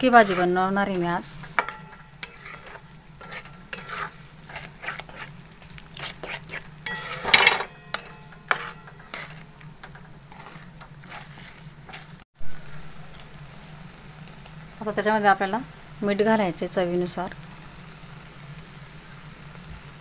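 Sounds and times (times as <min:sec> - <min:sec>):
spatula scraping metal pan: 0:00.0 - 0:12.2.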